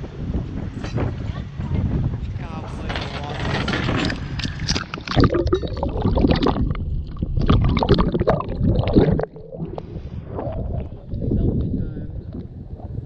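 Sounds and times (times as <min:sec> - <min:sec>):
low rumble: 0:02.8 - 0:13.0
water sloshing and gurgling: 0:03.5 - 0:13.0.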